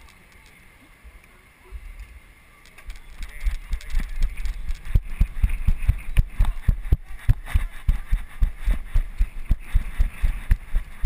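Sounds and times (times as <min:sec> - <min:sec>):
child running footsteps: 0:03.2 - 0:11.0.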